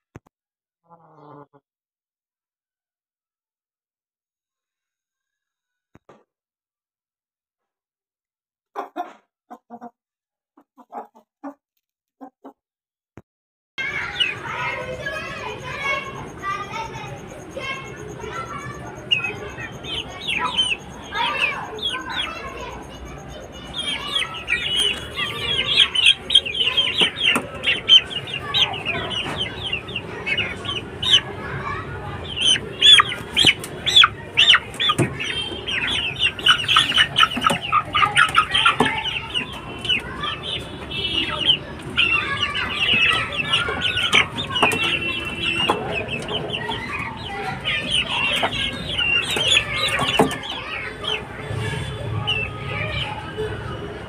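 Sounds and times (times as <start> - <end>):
chicks peeping: 13.8 - 54.0.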